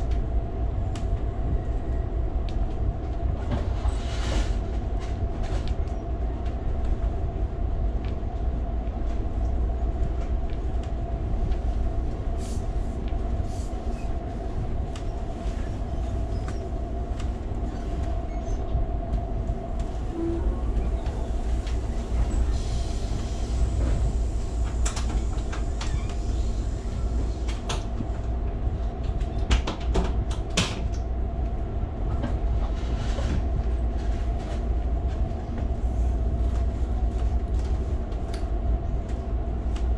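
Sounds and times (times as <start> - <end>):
train car rumble and hum: 0.0 - 39.9.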